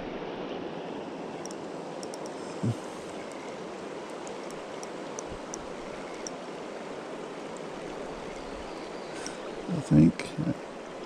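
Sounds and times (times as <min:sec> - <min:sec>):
river water rushing over rocks: 0:00.0 - 0:09.7
faint high ticks: 0:01.4 - 0:06.4.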